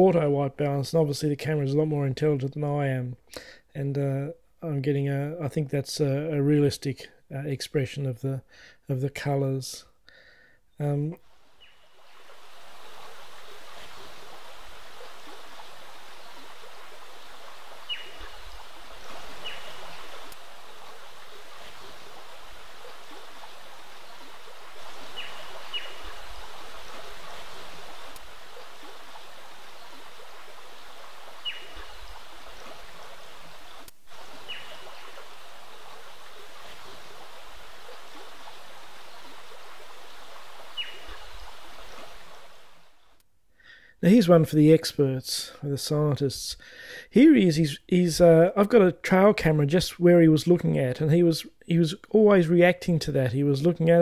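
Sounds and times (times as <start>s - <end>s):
creek running: 10.8s - 43.2s.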